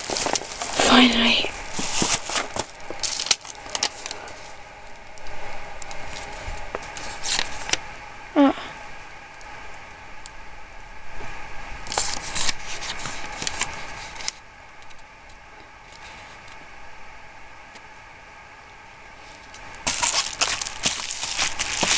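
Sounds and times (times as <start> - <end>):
plastic bag crinkling: 0.0 - 7.8, 11.9 - 14.3, 19.8 - 21.9.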